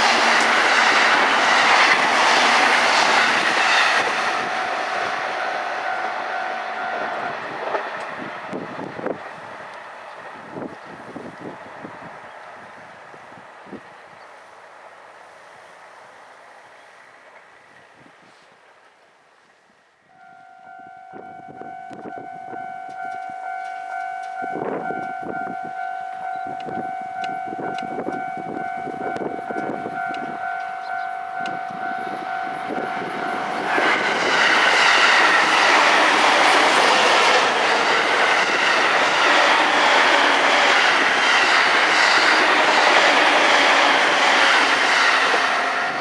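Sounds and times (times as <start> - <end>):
wheels clacking over rail joints: 0.0 - 10.2, 29.1 - 46.0
electric train passing: 0.0 - 18.0, 20.0 - 46.0
high ringing tone: 4.3 - 7.9, 20.1 - 35.8, 45.1 - 46.0
faint rhythmic clacks: 21.8 - 25.5.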